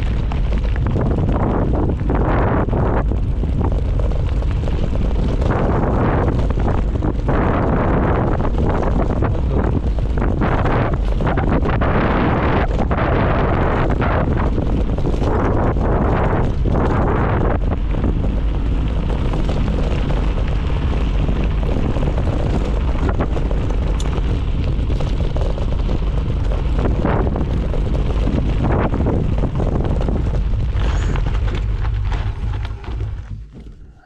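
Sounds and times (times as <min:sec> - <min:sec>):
bike knocks and rattles: 0:00.0 - 0:34.0
wind on microphone: 0:00.0 - 0:34.0.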